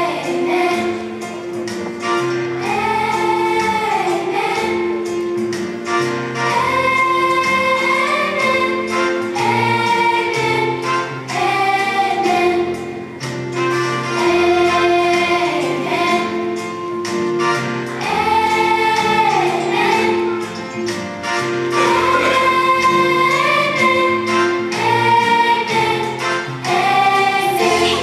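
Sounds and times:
instrumental backing: 0.0 - 28.0
choir singing: 21.6 - 28.0.

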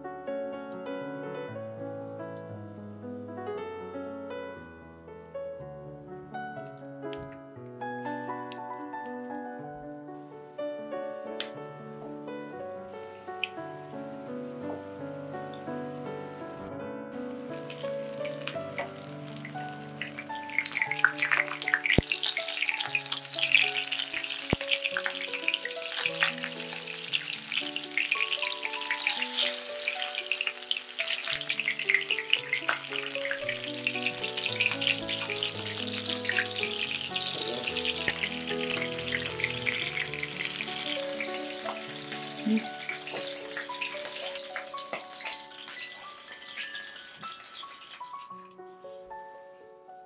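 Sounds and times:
slow background music: 0.0 - 50.0
fish frying in hot oil: 17.2 - 48.4.

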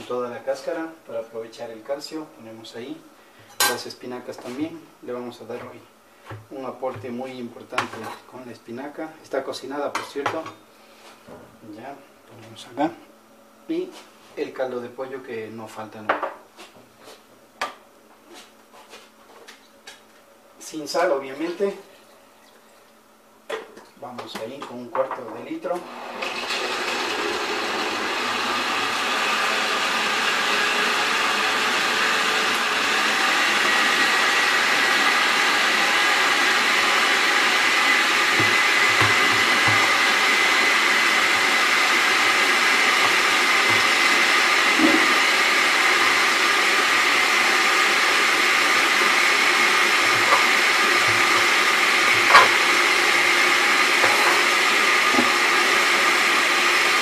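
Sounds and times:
blender motor whine: 25.8 - 57.0.

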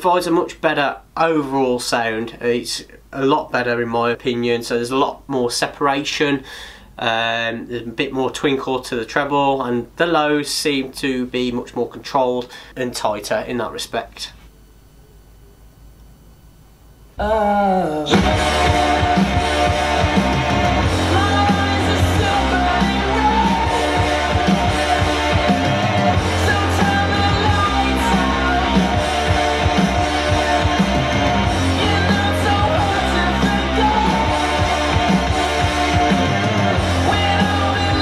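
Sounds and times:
rock song from vinyl record: 18.1 - 38.0.

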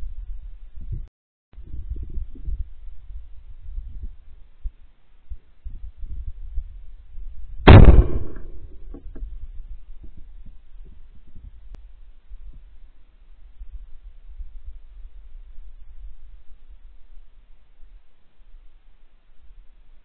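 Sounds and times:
wind rumbling on microphone: 0.0 - 20.0
shotgun shot: 7.7 - 8.8.

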